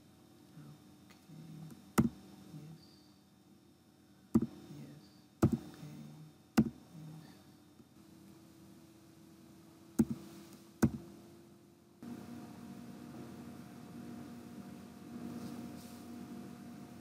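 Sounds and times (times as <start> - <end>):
keyboard key clicks: 10.0 - 10.2.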